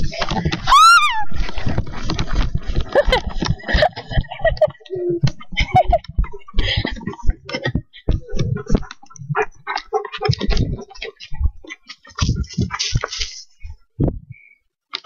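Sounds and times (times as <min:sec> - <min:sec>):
breathing: 0:06.5 - 0:07.1.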